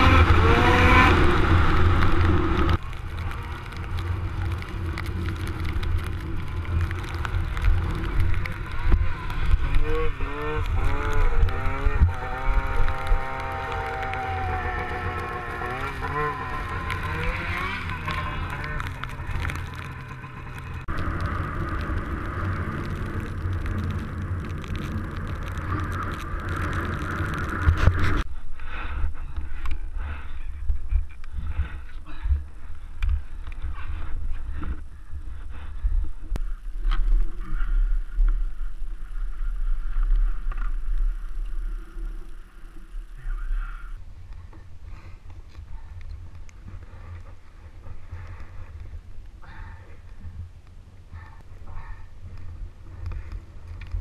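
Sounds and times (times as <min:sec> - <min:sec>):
snowmobile engines running: 0:00.0 - 0:28.3
wind and snow noise: 0:00.0 - 0:54.0.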